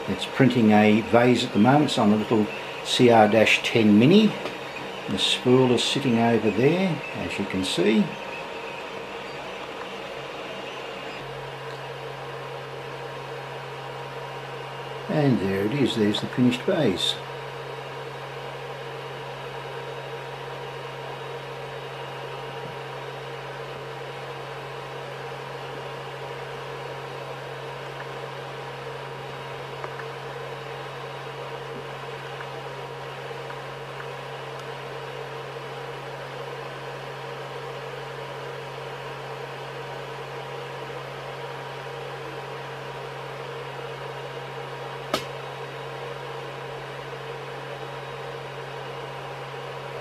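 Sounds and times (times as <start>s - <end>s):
faint steady tones: 0.0s - 18.1s
cooling fans humming: 0.0s - 50.0s
sharp click: 45.1s - 45.4s.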